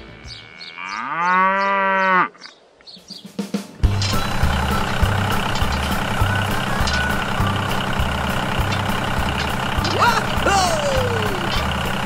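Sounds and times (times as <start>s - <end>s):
tractor engine chugging: 3.8s - 12.0s.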